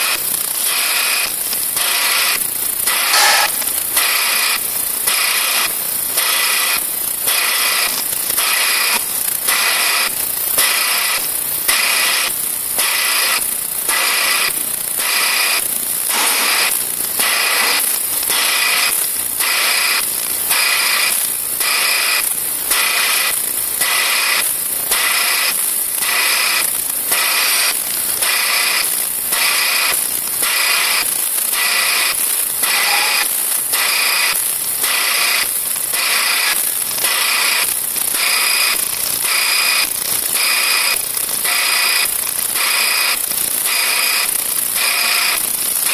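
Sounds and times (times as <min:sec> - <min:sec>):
sieve machine pulsing whine: 0:01.6 - 0:05.8, 0:14.2 - 0:20.0, 0:31.6 - 0:34.3.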